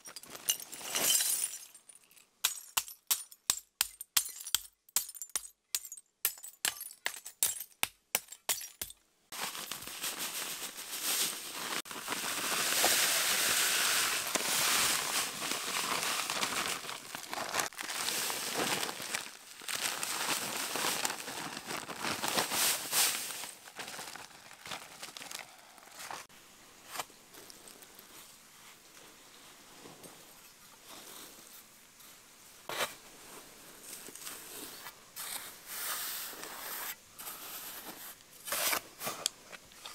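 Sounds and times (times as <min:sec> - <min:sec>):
hammer crunching broken glass: 0:00.0 - 0:09.0.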